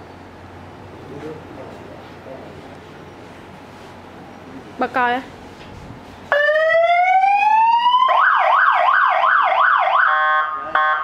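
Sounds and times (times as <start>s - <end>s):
motorcycle siren wailing and yelping: 6.4s - 11.0s.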